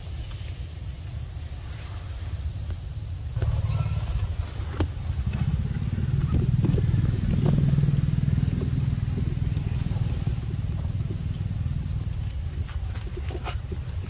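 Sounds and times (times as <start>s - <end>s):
insects droning: 0.0s - 14.0s
low rumble: 3.4s - 13.0s.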